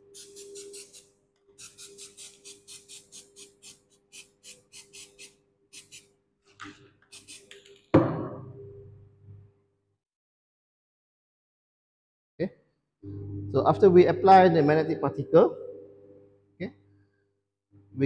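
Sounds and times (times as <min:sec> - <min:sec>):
electromagnet steady hum: 0:13.0 - 0:18.0.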